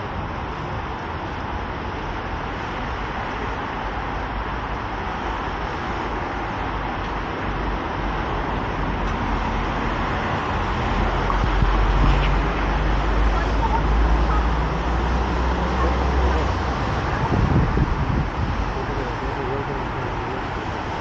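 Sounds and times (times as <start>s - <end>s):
road traffic rushing hum: 0.0s - 21.0s.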